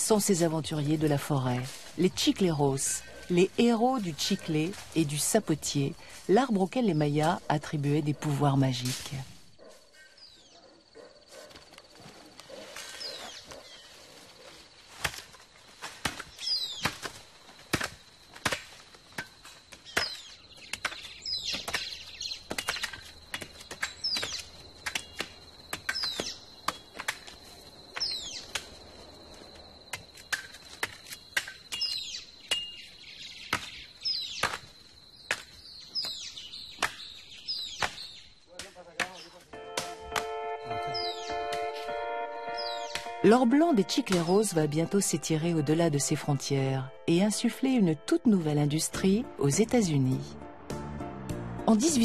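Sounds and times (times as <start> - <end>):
birds chirping: 0.0 - 8.6, 9.5 - 14.9, 16.3 - 17.0, 19.8 - 27.0, 31.1 - 38.4, 39.0 - 50.9
machete chopping into bark: 14.9 - 27.4, 33.4 - 40.3
steady high tone: 39.5 - 48.4.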